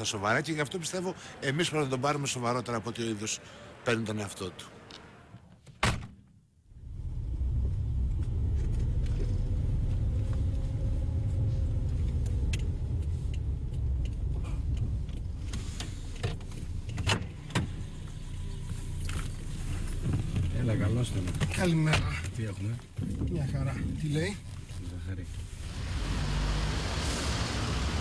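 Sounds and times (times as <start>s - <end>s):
car engine rumble and road noise: 6.7s - 28.0s.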